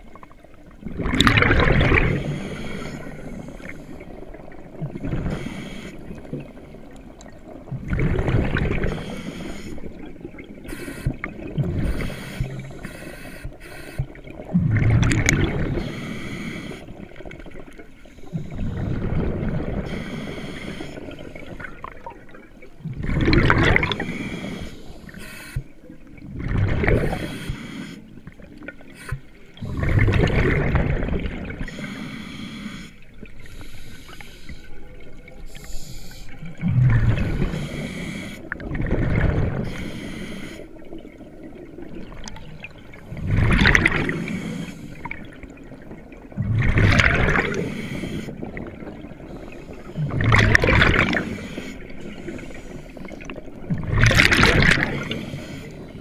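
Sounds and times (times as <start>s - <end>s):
exhaled bubbles gurgling: 0.0s - 32.2s, 32.8s - 56.0s
diver inhaling through regulator: 2.1s - 4.1s, 5.2s - 6.3s, 8.8s - 10.0s, 10.7s - 14.1s, 15.6s - 17.0s, 19.8s - 21.4s, 23.8s - 25.8s, 26.8s - 28.2s, 31.6s - 34.8s, 35.5s - 38.6s, 39.6s - 40.8s, 43.6s - 45.2s, 46.9s - 48.6s, 50.8s - 53.4s, 54.8s - 56.0s.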